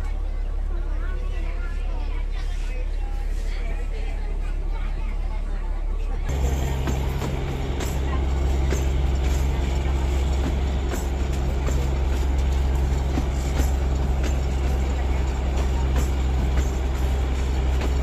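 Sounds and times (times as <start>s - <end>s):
train rumbling: 6.2s - 18.0s
wheels clicking over rail joints: 6.3s - 18.0s.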